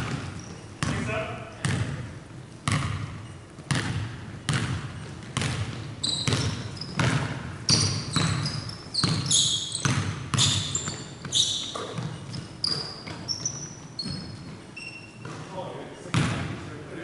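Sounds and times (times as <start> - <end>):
basketball bouncing on wooden floor: 0.0 - 14.6, 16.1 - 16.5
sneakers squeaking: 0.0 - 16.6.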